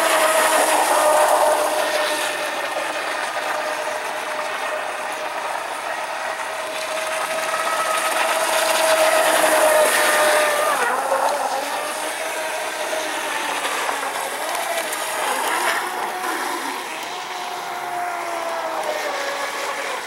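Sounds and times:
model boat motor whine: 0.0 - 20.0
spray hissing off hull: 0.0 - 20.0.

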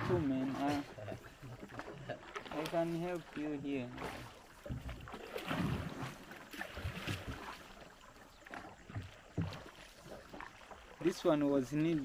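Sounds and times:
paddle splashing water: 0.0 - 12.0.

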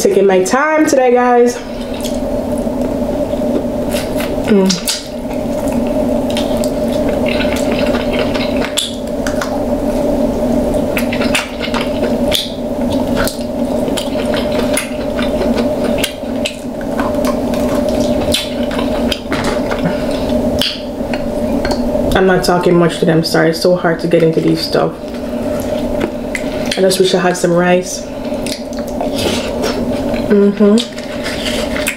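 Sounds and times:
steady low hum: 0.0 - 31.9
wet squishing eating sounds: 1.6 - 10.0, 10.7 - 22.6, 28.1 - 31.9.

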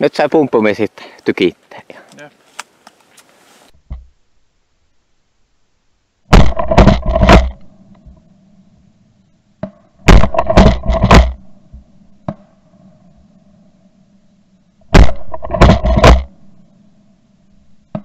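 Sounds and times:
shotgun shots: 6.3 - 7.6, 10.0 - 11.4, 14.9 - 16.3.

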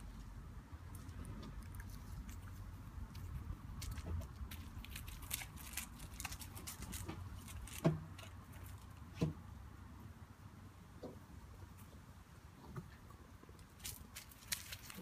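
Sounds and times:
steady low rumble: 0.0 - 7.7
light clicks and rustles: 12.7 - 15.0.

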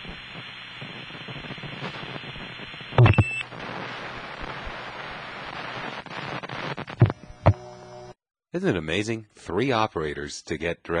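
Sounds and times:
telephone line hiss: 0.0 - 6.9.

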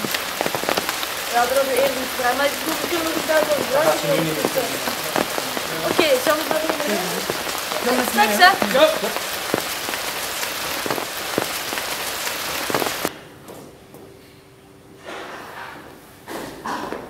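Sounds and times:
burst of voices: 0.0 - 10.2
rain-like rushing noise: 0.0 - 13.1.

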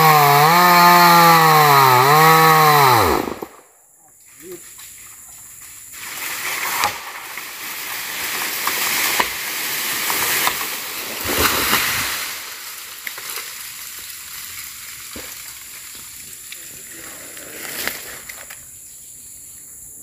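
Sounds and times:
tree falling: 6.0 - 18.5
branches cracking: 6.0 - 18.6
heavy thuds of tree landing: 6.5 - 12.6.

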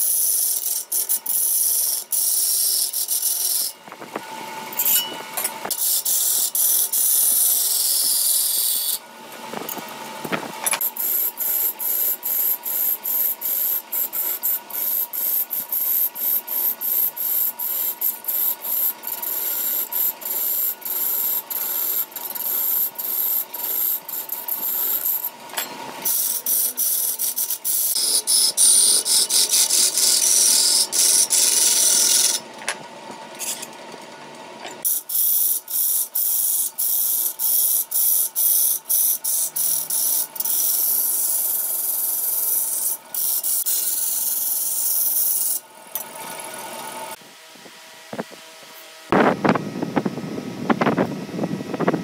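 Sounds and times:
lathe tool scraping wood: 0.0 - 3.8, 4.4 - 32.7, 34.8 - 47.2
wood lathe running: 5.7 - 9.0, 11.0 - 32.7, 34.9 - 47.2.

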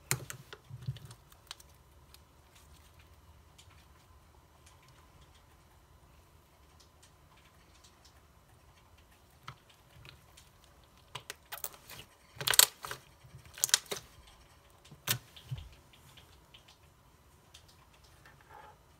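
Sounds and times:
slime squishing and popping: 9.3 - 14.1.

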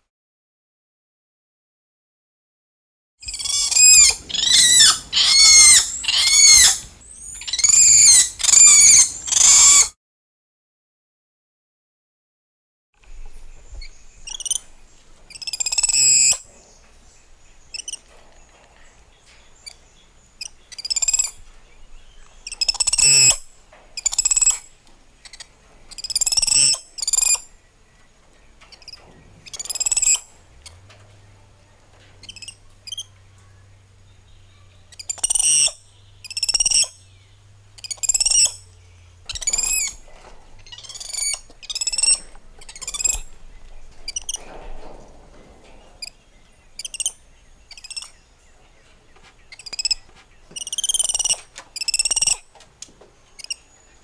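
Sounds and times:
monkeys calling: 3.2 - 9.9, 22.4 - 23.4, 25.2 - 27.5, 32.2 - 33.1, 34.5 - 37.0, 37.8 - 38.7, 39.3 - 43.4, 46.8 - 48.2, 49.5 - 52.5.

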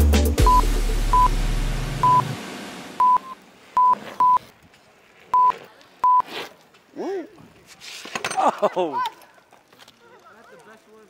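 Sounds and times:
backing track music: 0.0 - 3.4
short loud beeps: 0.4 - 1.3, 2.0 - 2.4, 3.0 - 4.4, 5.4 - 6.2.

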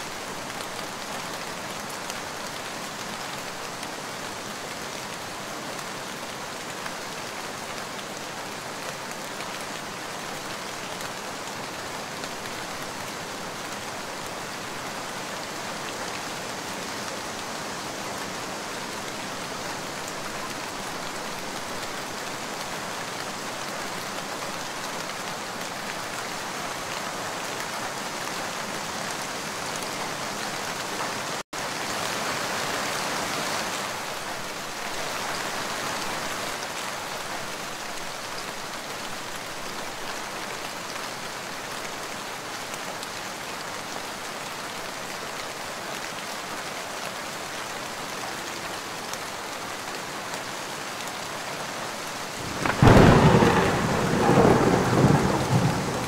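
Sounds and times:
steady rain hiss: 0.0 - 56.0
thunder rumble: 52.4 - 56.0.

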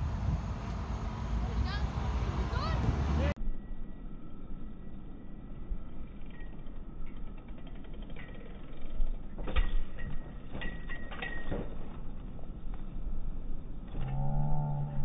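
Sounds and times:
wind rumbling on microphone: 0.0 - 3.4.

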